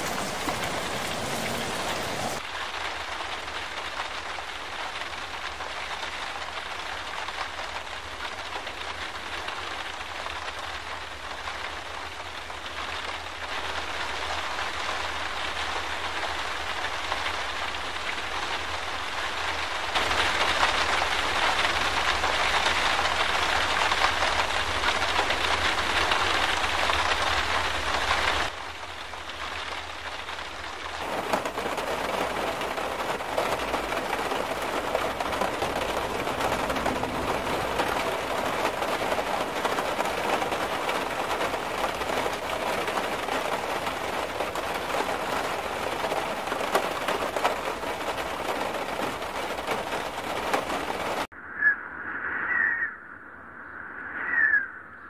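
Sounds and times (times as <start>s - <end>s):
churning floodwater rushing: 0.0s - 3.9s, 30.9s - 51.3s
heavy rain: 0.0s - 51.3s.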